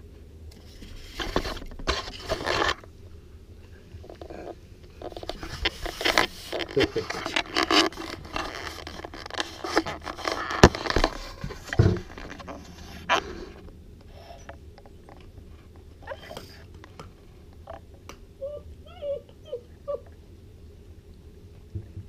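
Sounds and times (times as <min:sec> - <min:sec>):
puppy crunching kibble: 0:04.0 - 0:12.8.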